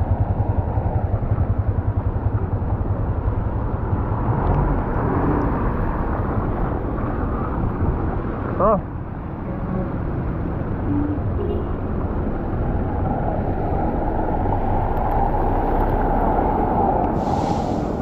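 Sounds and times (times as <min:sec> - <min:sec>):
wind rushing over microphone: 0:12.0 - 0:18.0
rain noise: 0:14.0 - 0:18.0.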